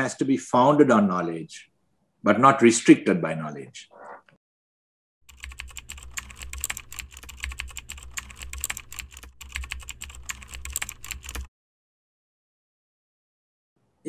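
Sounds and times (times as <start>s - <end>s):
rapid keyboard keystrokes: 5.3s - 11.5s.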